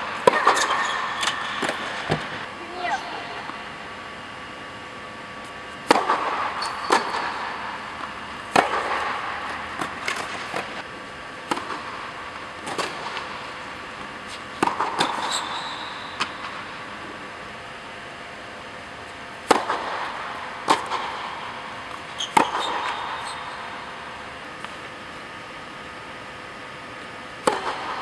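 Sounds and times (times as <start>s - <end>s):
tennis ball struck by rackets: 0.2s - 2.4s, 5.8s - 10.8s, 11.4s - 15.3s, 19.4s - 23.2s, 27.4s - 28.0s
shoe squeaks on court: 0.6s - 1.3s, 6.6s - 7.0s, 15.2s - 16.1s, 22.1s - 23.6s.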